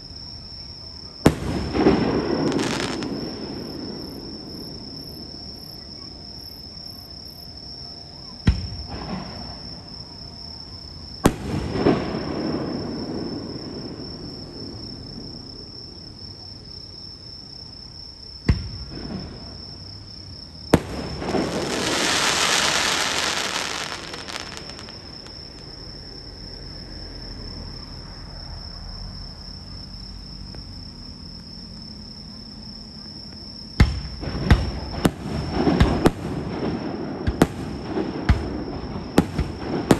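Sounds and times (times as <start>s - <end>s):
insects trilling: 0.0s - 39.9s
fireworks bursting: 1.2s - 4.7s, 11.2s - 14.0s, 20.7s - 25.9s, 33.8s - 39.9s
fireworks crackling hiss: 1.2s - 5.3s, 11.2s - 14.8s, 20.7s - 26.0s, 33.8s - 39.9s.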